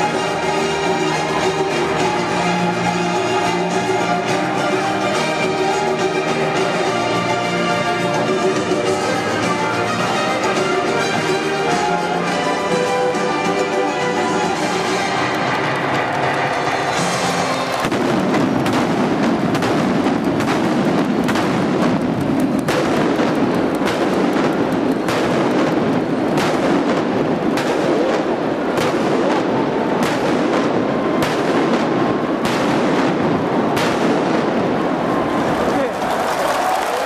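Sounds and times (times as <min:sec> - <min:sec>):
steady dense din: 0:00.0 - 0:36.1
firework shells bursting with echo: 0:14.6 - 0:35.1.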